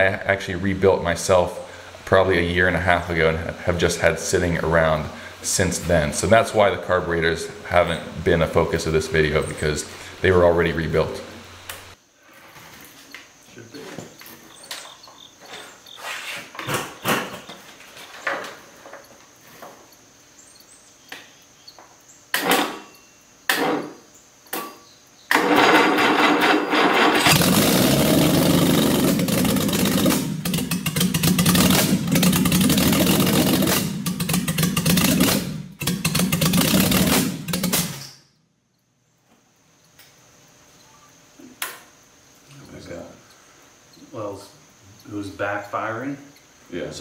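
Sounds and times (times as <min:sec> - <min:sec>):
engine cranking and running rough: 0:25.3 - 0:37.9
engine backfire pops: 0:25.3 - 0:38.2.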